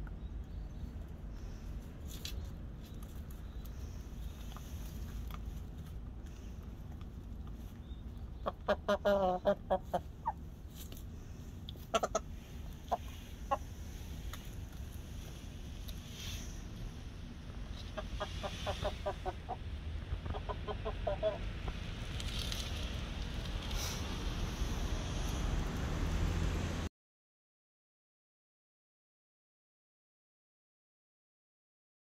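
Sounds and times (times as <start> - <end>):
short clucks: 11.7 - 13.6, 20.2 - 21.4.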